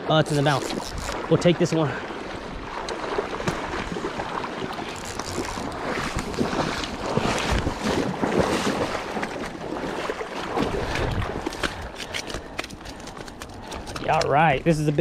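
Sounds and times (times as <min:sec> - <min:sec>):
fish splashing in water: 0:02.6 - 0:14.0.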